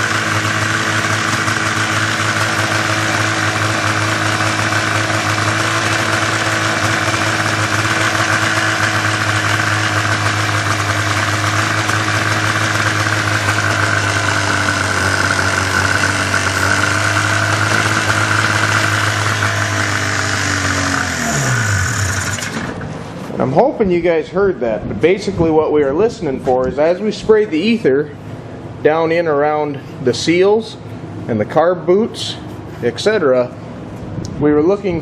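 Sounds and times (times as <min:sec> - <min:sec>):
snowmobile engine idling high: 0:00.0 - 0:22.9.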